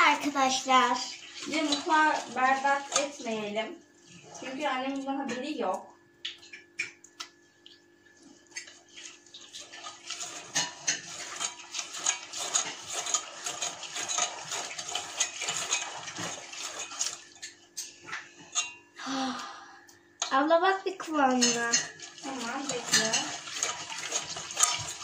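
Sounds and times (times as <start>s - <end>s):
wet batter scraping: 0.0s - 5.7s, 8.1s - 18.8s, 21.1s - 25.0s
whisk clinking against pot: 9.4s - 18.8s, 21.3s - 25.0s.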